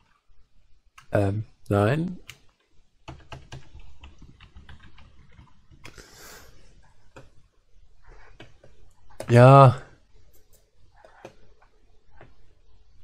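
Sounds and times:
keyboard typing clicks: 2.2s - 6.0s.

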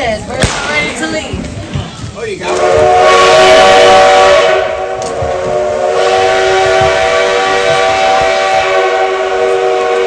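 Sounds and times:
steam locomotive whistle blast: 2.5s - 10.0s.

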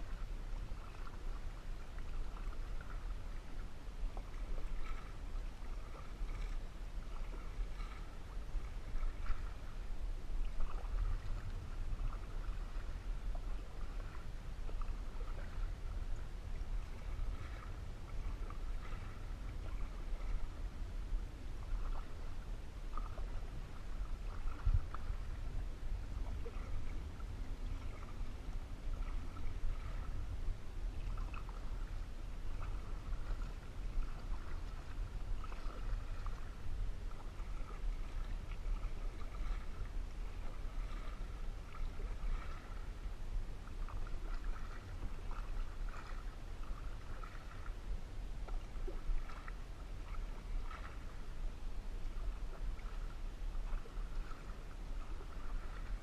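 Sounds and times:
paddle splashing water: 0.0s - 56.0s
steady low rumble: 0.0s - 56.0s
water lapping at hull: 0.0s - 56.0s.

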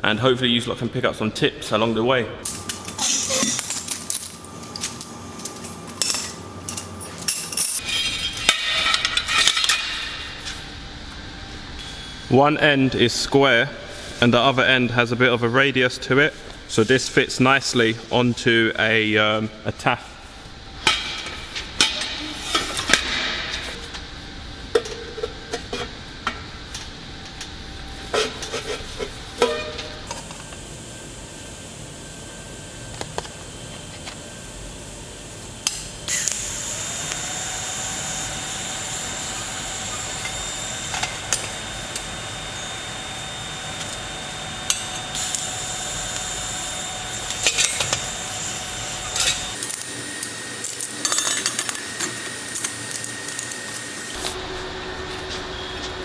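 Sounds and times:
welding arc hissing: 2.4s - 7.8s, 35.8s - 54.4s.

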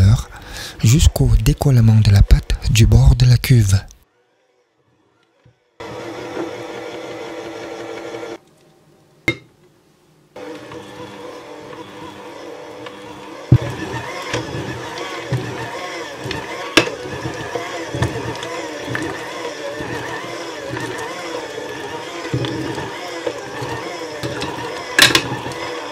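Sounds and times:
electric hand mixer running: 4.1s - 8.4s, 10.4s - 25.9s.

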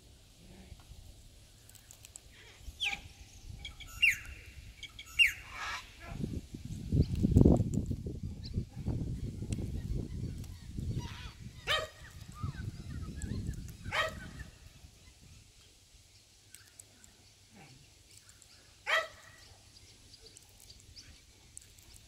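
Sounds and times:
dog barking: 11.7s - 12.0s, 13.9s - 14.4s, 18.9s - 19.3s.

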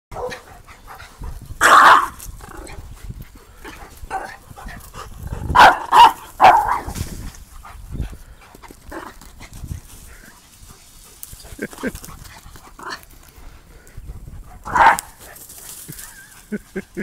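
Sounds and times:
dog barking: 0.1s - 0.5s, 1.6s - 2.2s, 5.5s - 6.9s, 14.6s - 15.1s.

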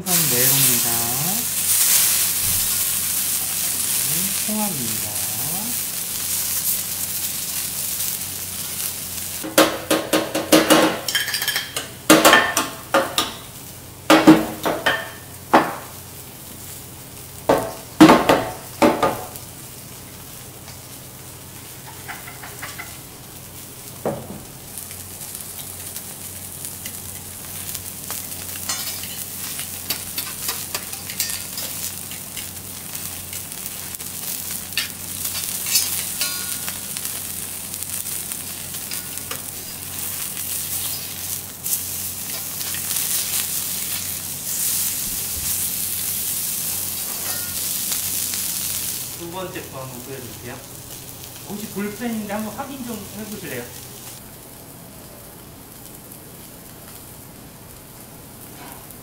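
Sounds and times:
fish sizzling on a griddle: 0.0s - 59.0s
metal utensils clanking on hot plate: 9.4s - 13.4s, 21.8s - 23.0s, 28.5s - 32.5s, 34.6s - 37.2s, 38.7s - 41.2s, 42.2s - 44.1s, 47.0s - 47.7s.

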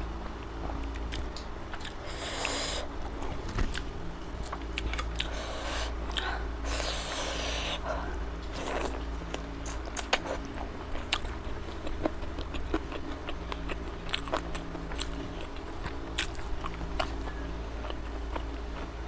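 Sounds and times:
steady low hum: 0.0s - 19.0s
person chewing with mouth clicks: 3.6s - 7.8s, 8.4s - 18.9s.

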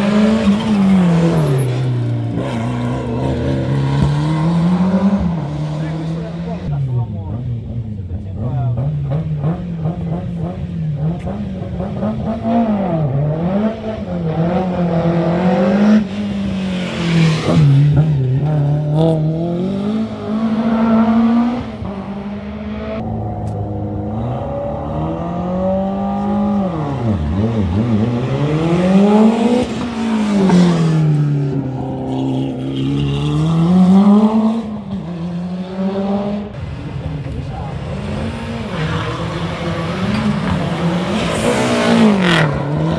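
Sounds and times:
rally car engine revving: 0.0s - 42.9s.

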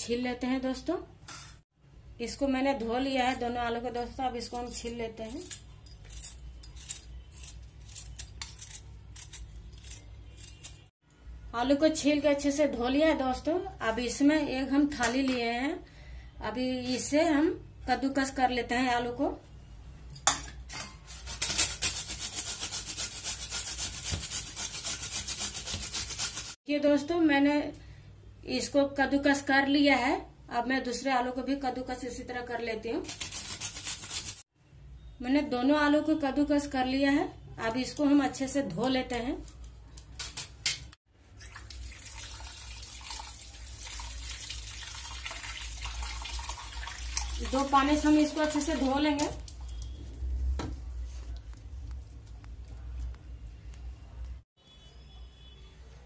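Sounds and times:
potato grating on metal grater: 5.3s - 10.9s, 21.1s - 26.6s, 33.0s - 34.4s
tap water running into steel bowl: 41.4s - 49.6s.

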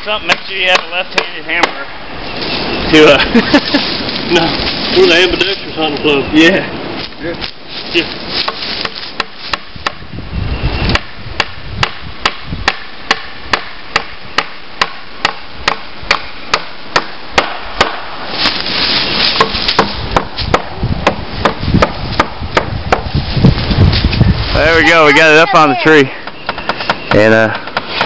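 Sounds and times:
hammer striking wood: 8.4s - 10.0s, 10.9s - 18.1s, 19.4s - 23.1s, 26.2s - 28.0s.

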